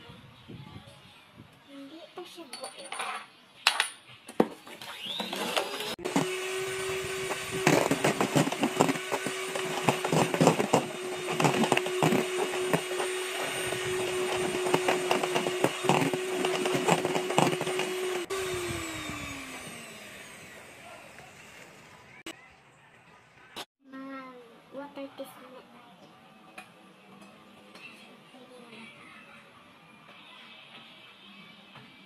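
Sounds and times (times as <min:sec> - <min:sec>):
electric hand mixer humming: 0:04.9 - 0:22.3
mixer motor winding down: 0:04.9 - 0:22.3.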